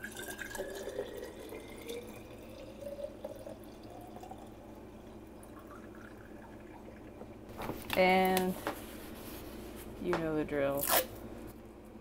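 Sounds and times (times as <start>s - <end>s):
liquid pouring into glass bottle: 0.0s - 7.4s.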